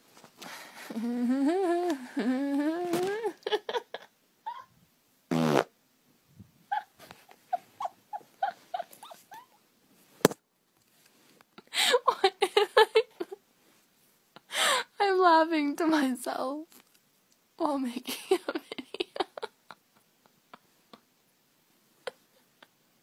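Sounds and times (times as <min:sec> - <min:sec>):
person farting: 0:05.3 - 0:05.7.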